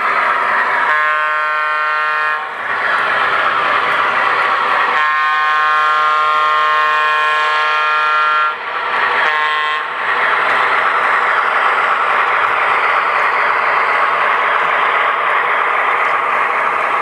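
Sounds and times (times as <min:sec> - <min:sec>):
model train running: 0:00.0 - 0:17.0
model train air horn: 0:00.8 - 0:02.6, 0:04.9 - 0:08.6, 0:09.2 - 0:10.0.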